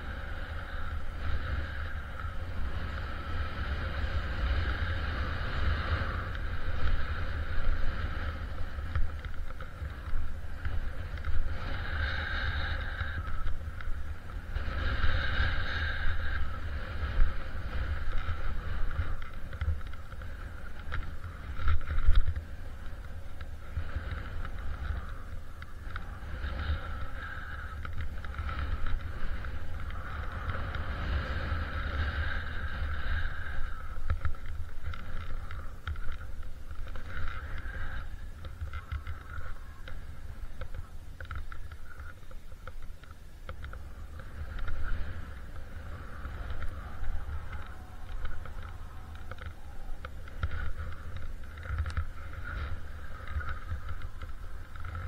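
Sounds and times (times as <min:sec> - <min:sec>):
wind rumble on microphone: 0:00.0 - 0:55.0
skis hissing through powder snow: 0:09.7 - 0:19.5.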